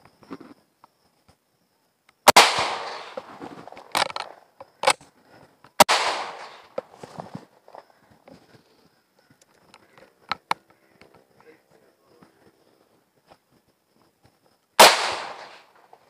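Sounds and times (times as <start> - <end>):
pistol shots echoing: 2.3 - 3.3, 5.8 - 6.9, 14.8 - 16.0.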